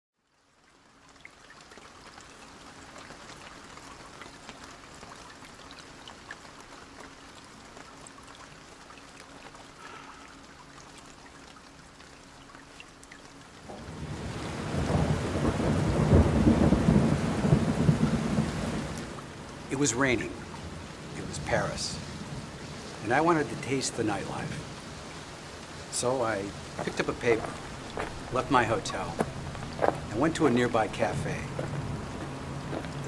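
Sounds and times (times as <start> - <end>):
steady rain: 0.2 - 33.0
deep thunder rumble: 13.7 - 19.0.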